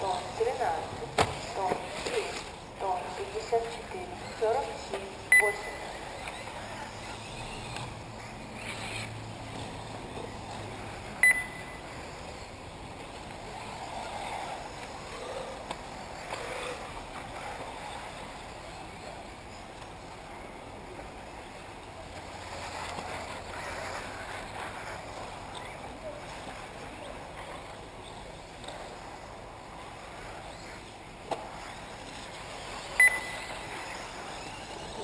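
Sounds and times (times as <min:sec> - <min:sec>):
electric rc buggies running on dirt: 0:00.0 - 0:35.0
short high beep: 0:05.3 - 0:05.8, 0:11.2 - 0:11.8, 0:33.0 - 0:33.5.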